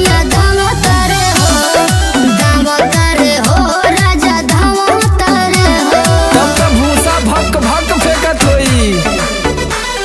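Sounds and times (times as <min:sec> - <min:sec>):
drum hits: 0:00.0 - 0:07.4
sliding bass notes: 0:00.0 - 0:10.0.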